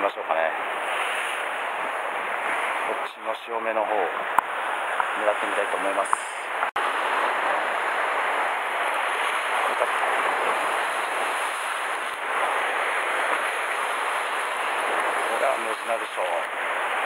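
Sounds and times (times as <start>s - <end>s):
surf breaking on rocks: 4.2s - 17.0s.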